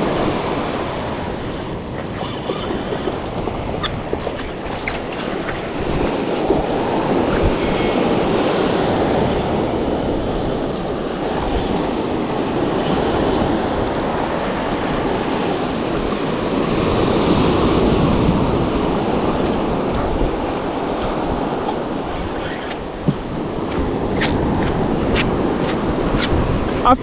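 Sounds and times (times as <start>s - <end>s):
surf washing on sandy beach: 0.0s - 27.0s.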